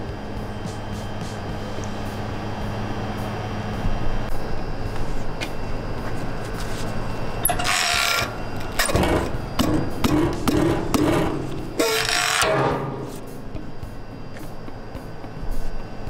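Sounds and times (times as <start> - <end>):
metal scrape: 6.4 - 13.7
metal thump: 8.8 - 13.6.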